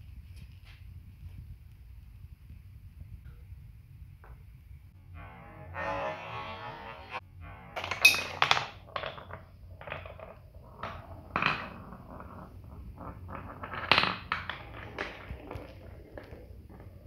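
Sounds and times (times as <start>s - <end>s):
ball rolling on wooden track: 4.2s - 17.0s
ball knocking on track joints: 7.8s - 17.0s.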